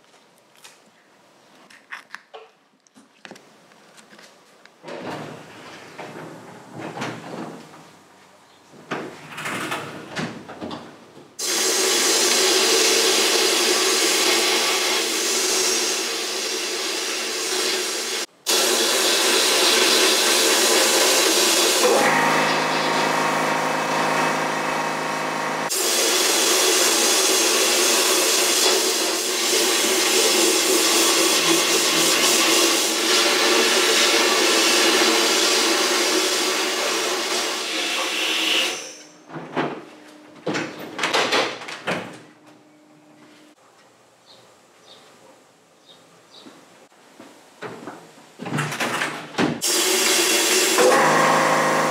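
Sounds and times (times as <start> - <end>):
knocks and clatters: 4.8 - 7.9, 47.6 - 49.6
blast gun hissing: 11.4 - 35.1.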